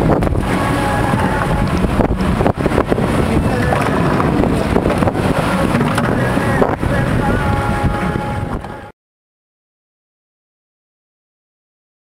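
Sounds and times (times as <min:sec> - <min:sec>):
boat engine rumble: 0:00.0 - 0:08.9
wind buffeting microphone: 0:00.0 - 0:08.9.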